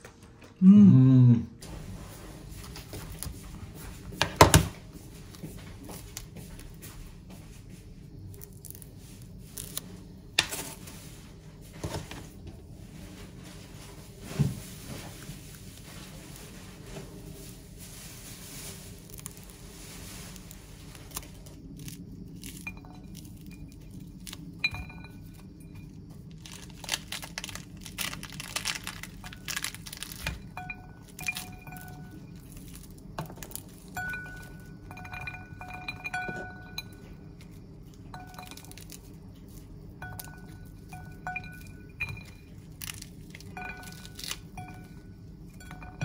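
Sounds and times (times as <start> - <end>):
bell-like ringing tone: 34.0 - 37.2, 43.6 - 46.0.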